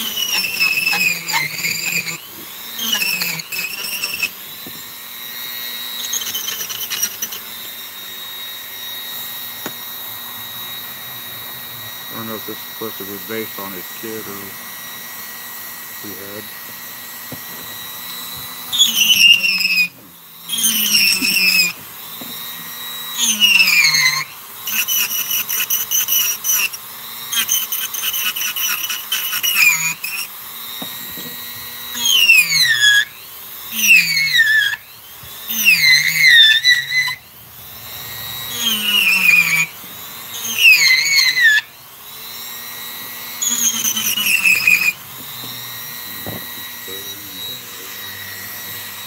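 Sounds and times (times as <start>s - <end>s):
rotary tool whining: 0.0s - 49.0s.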